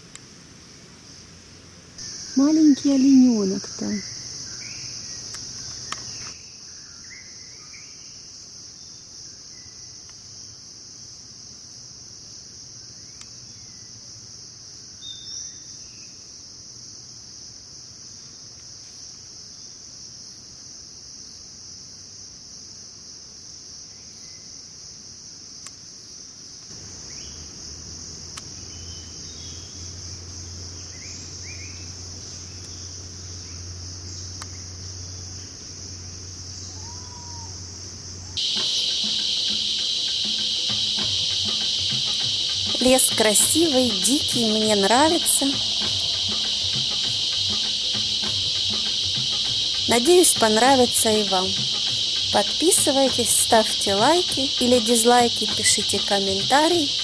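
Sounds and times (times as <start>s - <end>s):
insects droning: 0.0s - 57.0s
bird chirps: 38.3s - 57.0s.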